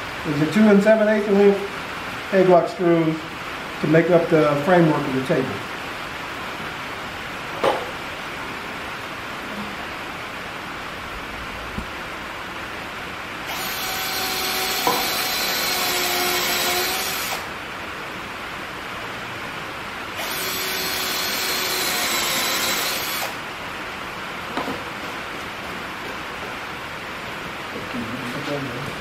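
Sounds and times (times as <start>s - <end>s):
cordless drill driving screws: 13.5s - 17.5s, 20.2s - 23.4s.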